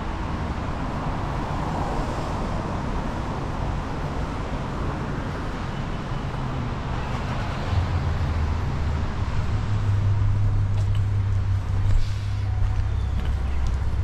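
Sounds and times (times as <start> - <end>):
low engine hum: 7.8 - 14.0
tyres hissing on wet road: 11.9 - 12.5.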